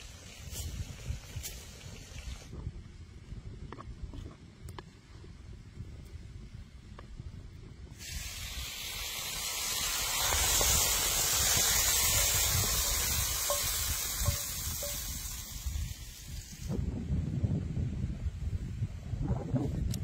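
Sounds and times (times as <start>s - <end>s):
food sizzling: 8.0s - 16.8s.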